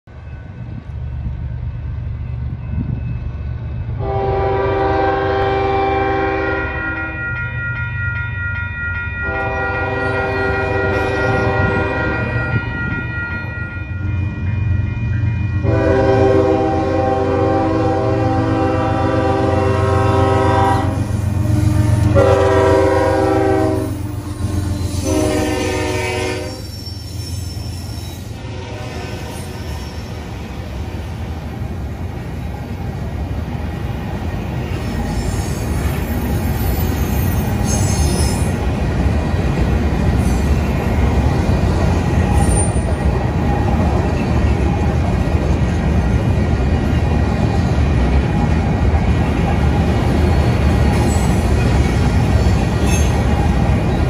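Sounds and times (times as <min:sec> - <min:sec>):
train passing: 0:00.0 - 0:54.0
locomotive air horn blasts: 0:04.0 - 0:07.3, 0:09.2 - 0:12.6, 0:15.6 - 0:26.8, 0:28.3 - 0:29.6.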